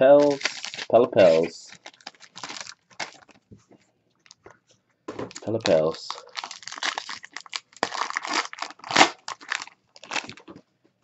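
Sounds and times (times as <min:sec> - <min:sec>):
foil wrapper tearing and crinkling: 0:00.2 - 0:03.4, 0:05.3 - 0:10.5.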